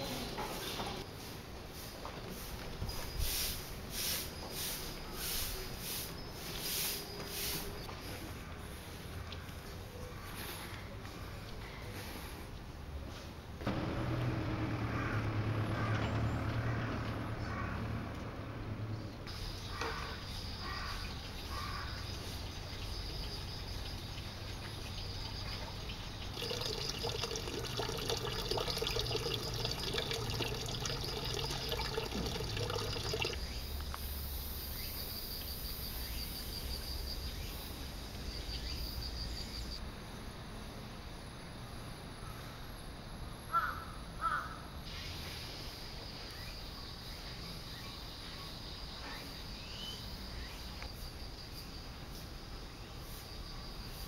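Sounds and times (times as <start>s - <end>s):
crow cawing: 15.0s - 16.0s, 17.4s - 17.8s, 19.7s - 22.0s, 43.5s - 44.7s.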